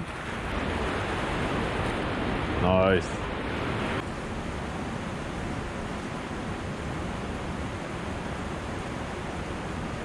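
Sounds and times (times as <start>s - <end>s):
turbulent river water rushing: 0.0s - 10.0s.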